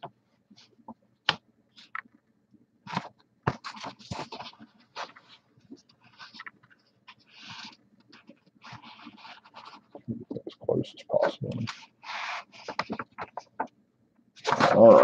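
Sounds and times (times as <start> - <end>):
paper rustling and crinkling: 2.8 - 10.1, 11.4 - 13.8, 14.4 - 15.0.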